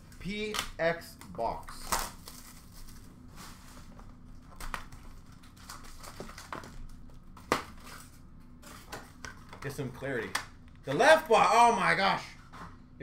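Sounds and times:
foil wrappers crinkling: 0:01.7 - 0:08.1.

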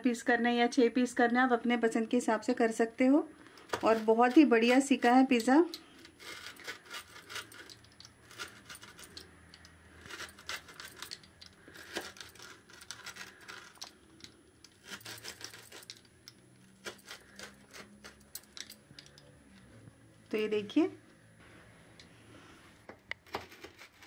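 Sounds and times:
pizza cutter crunching crust: 0:03.6 - 0:14.0, 0:14.7 - 0:16.0, 0:16.6 - 0:18.6.

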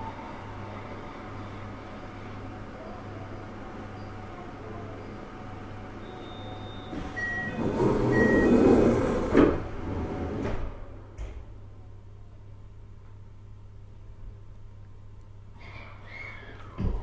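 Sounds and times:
short beeps: 0:06.0 - 0:08.5
train doors sliding shut: 0:06.8 - 0:11.5.

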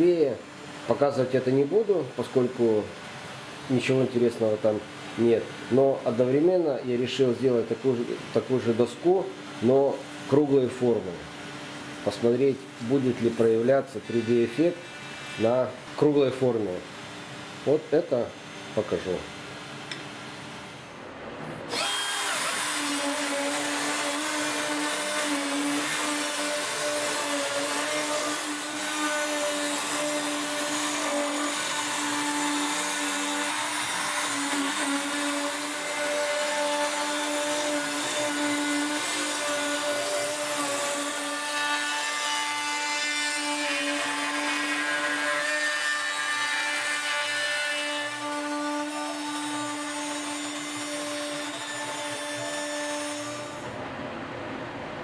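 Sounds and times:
router spindle whining: 0:21.6 - 0:53.7.

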